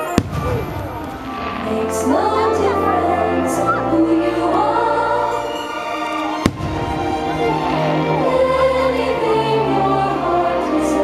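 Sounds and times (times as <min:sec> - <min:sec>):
firework bang: 0:00.0 - 0:01.7, 0:06.4 - 0:07.3
orchestral music with choir: 0:00.0 - 0:11.0.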